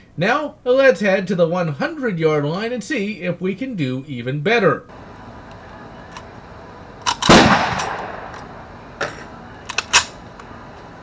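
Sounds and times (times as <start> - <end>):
rifle loading clicks: 7.0 - 10.5.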